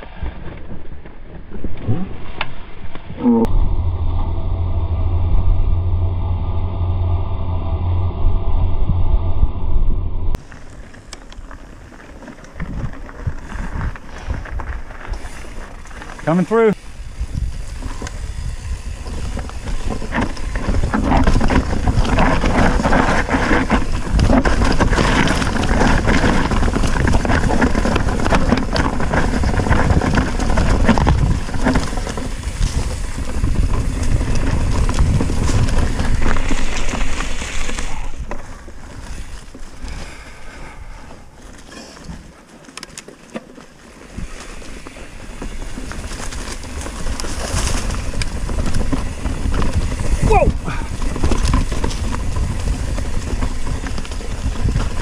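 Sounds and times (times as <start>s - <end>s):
bike clattering over bumps: 16.8s - 40.2s, 41.2s - 55.0s.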